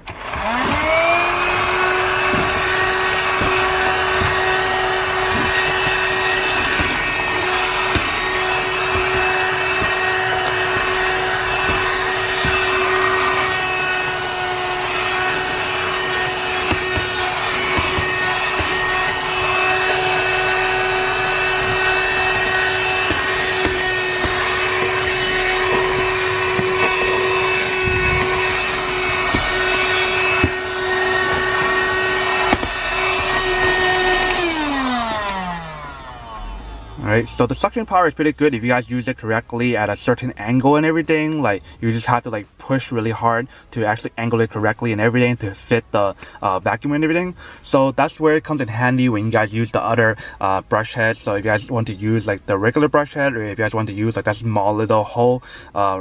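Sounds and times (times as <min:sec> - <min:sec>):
motor winding down: 0:00.0 - 0:37.7
car vacuum motor whine: 0:00.0 - 0:38.4.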